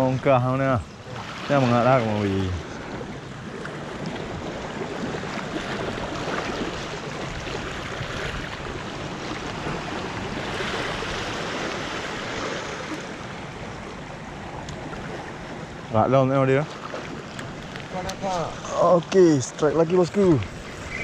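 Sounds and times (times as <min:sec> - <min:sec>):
waves splashing against rocks: 0:01.1 - 0:13.4.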